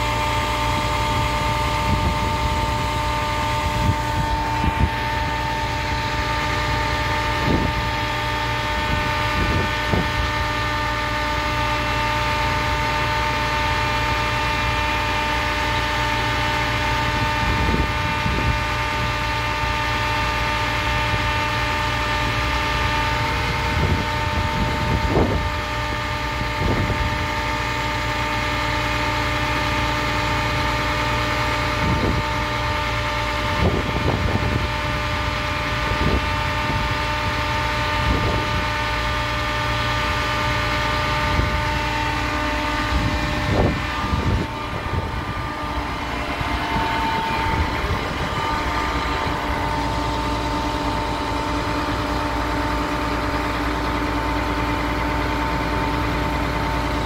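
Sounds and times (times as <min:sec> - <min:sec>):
truck engine humming: 0:00.0 - 0:57.0.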